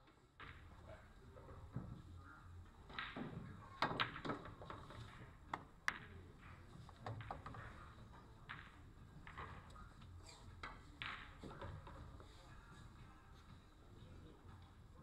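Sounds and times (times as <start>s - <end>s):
pool balls clacking: 2.8s - 10.0s, 10.6s - 12.2s.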